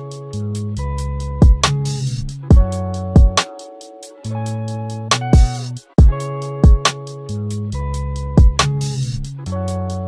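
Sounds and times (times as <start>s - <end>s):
background music with steady beat: 0.0s - 10.0s
heavy drum hit: 2.5s - 3.4s, 5.4s - 6.8s.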